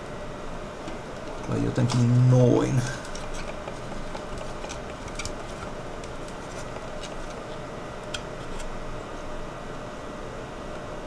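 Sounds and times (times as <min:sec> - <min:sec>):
fingers clicking plastic parts: 0:03.1 - 0:07.4.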